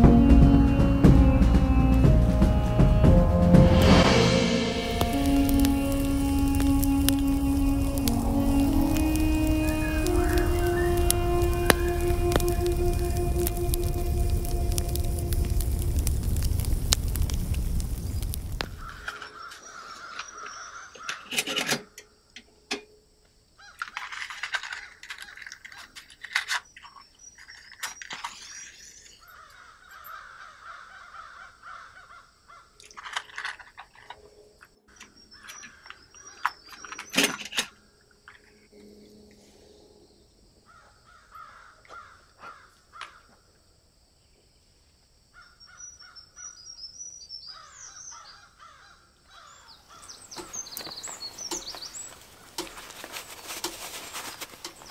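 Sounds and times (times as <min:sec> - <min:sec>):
small birds chirping: 0:04.9 - 0:21.3, 0:26.5 - 0:33.0, 0:34.8 - 0:37.2, 0:45.4 - 0:54.9
crows cawing: 0:05.1 - 0:15.6, 0:18.6 - 0:21.4, 0:29.2 - 0:32.8, 0:35.0 - 0:36.4, 0:40.7 - 0:43.4, 0:47.5 - 0:54.0.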